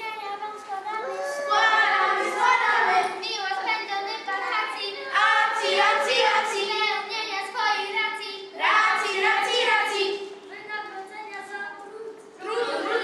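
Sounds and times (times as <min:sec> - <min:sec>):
children singing: 0:00.8 - 0:10.4.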